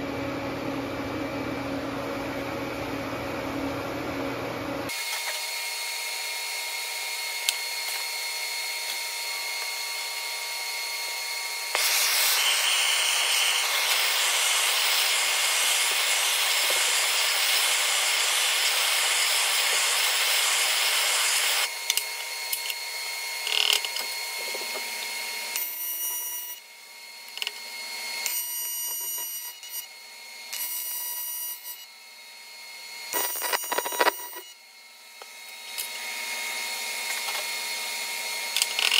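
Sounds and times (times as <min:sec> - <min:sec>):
welding arc buzzing: 0:04.9 - 0:27.6, 0:33.1 - 0:38.9
gas torch hissing: 0:11.7 - 0:21.7.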